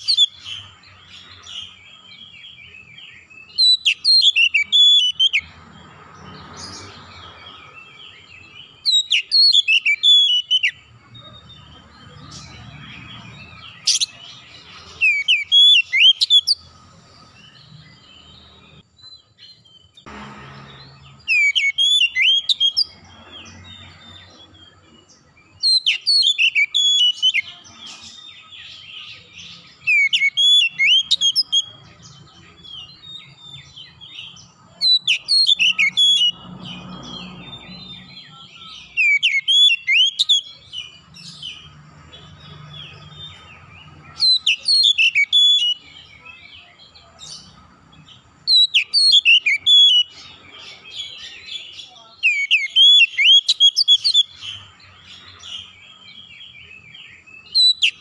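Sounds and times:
soft bird twittering: 0.0 - 58.0
bird singing whistled phrases: 2.7 - 5.5, 8.8 - 10.8, 14.9 - 16.6, 21.2 - 22.9, 25.5 - 27.6, 29.2 - 31.8, 34.8 - 36.4, 37.3 - 40.8, 44.1 - 46.7, 48.5 - 54.6, 56.7 - 58.0.

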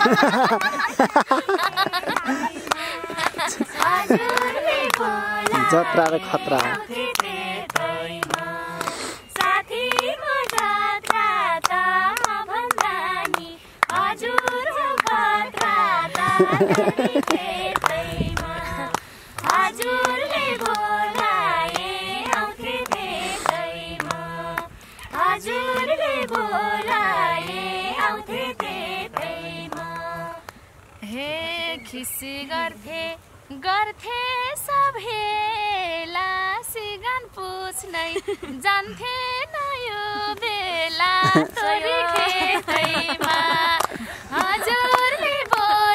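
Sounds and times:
hands clapping a beat: 0.0 - 30.6, 41.2 - 45.7
women singing folk song: 0.0 - 45.9.

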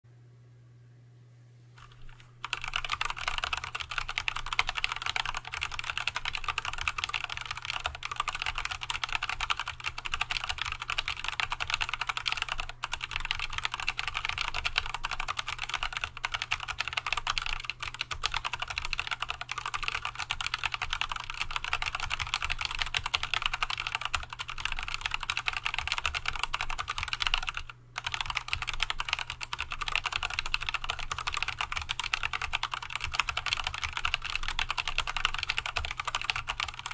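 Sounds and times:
mechanical keyboard typing: 1.8 - 36.9.

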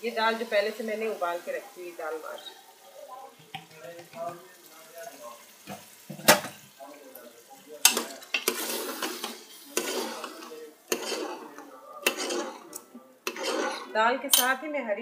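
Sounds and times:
food sizzling: 0.0 - 14.7
ladle scraping pot: 7.8 - 14.5.

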